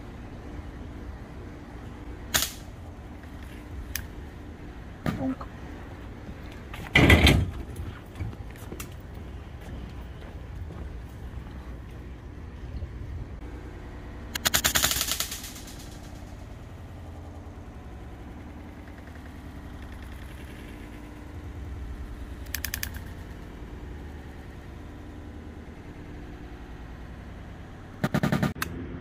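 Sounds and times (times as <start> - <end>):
air rifle crack: 2.3 - 2.7.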